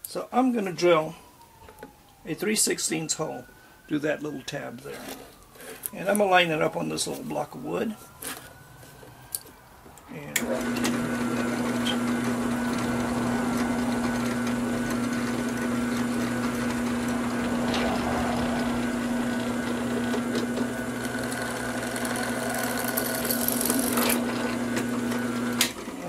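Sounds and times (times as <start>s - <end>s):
drill bit cutting sheet metal: 10.4s - 25.7s
drill press motor humming: 10.4s - 26.0s.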